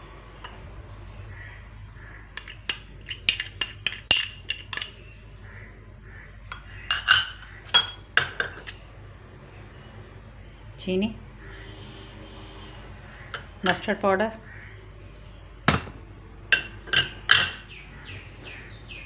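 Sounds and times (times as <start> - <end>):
glass bowls and spoon clinking: 2.4 - 5.0, 6.5 - 8.7, 16.5 - 17.7.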